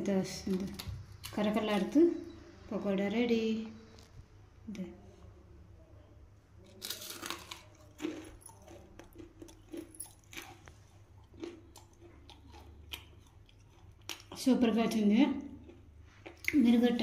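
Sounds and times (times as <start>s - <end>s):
crunchy fritter being chewed: 6.6s - 14.7s, 15.4s - 16.6s.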